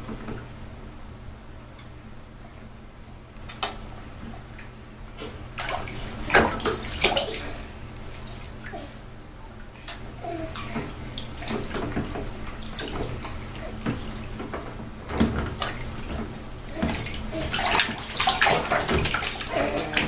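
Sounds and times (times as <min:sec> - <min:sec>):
bath water splashing: 0:05.4 - 0:09.0, 0:09.7 - 0:20.0.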